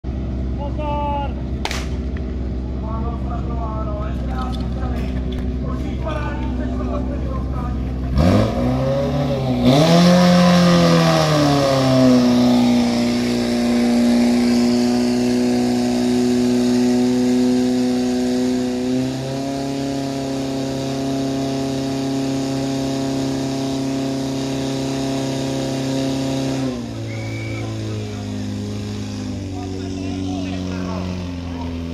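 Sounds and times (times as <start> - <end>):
pump engine revving: 6.8 - 31.9.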